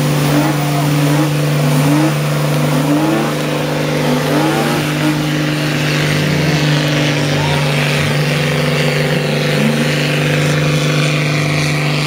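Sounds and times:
car engine at high revs: 0.0s - 12.0s.

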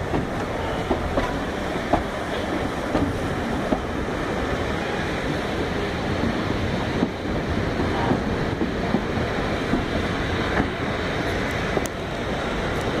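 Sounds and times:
passenger train running: 0.0s - 13.0s.

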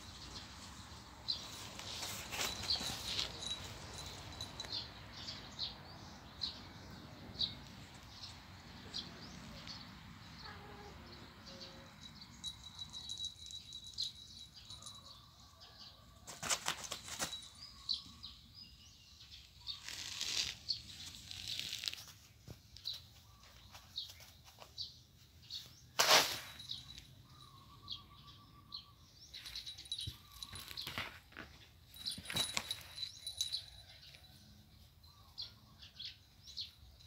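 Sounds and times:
cats scuffling on a mat: 1.3s - 4.2s, 16.2s - 17.6s, 21.6s - 26.7s.

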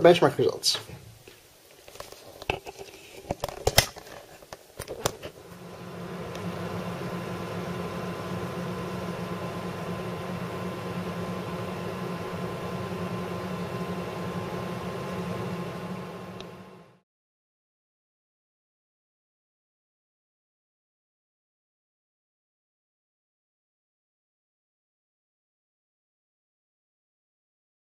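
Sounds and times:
computer fans whirring: 1.6s - 17.0s.

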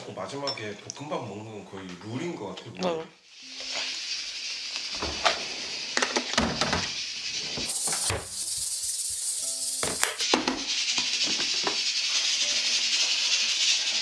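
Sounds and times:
steady hiss: 3.2s - 14.0s.

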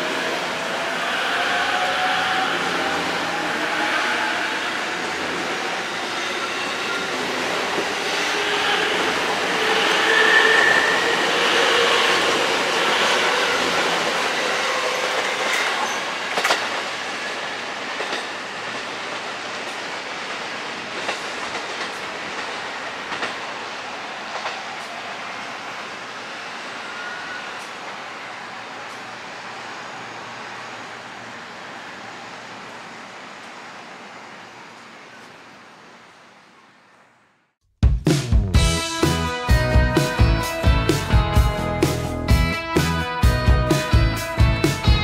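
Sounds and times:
electric train passing: 0.0s - 37.5s, 38.6s - 45.0s
wheel squeal: 8.0s - 16.2s, 26.8s - 27.8s
wheels clicking over rail joints: 12.3s - 16.9s, 17.9s - 23.5s.

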